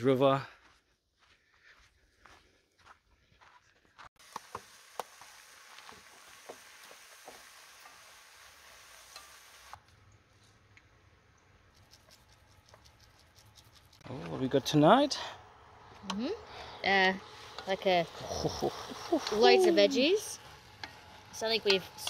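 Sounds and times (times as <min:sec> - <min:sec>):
food sizzling in a pot: 0:04.2 - 0:09.8.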